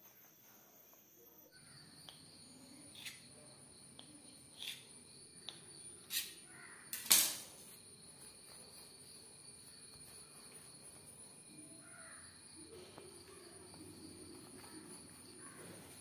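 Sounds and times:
knife cutting dough: 2.9s - 3.3s, 4.0s - 6.4s.

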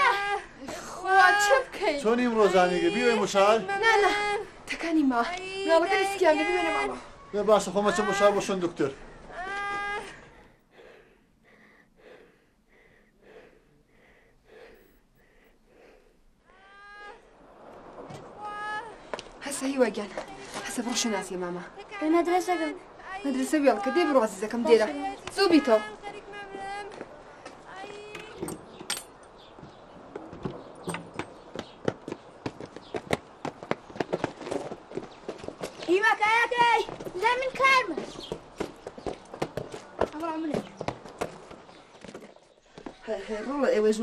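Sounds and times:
quick shallow breathing: 10.1s - 16.4s
footsteps on stony path: 19.1s - 21.3s, 24.7s - 43.7s.

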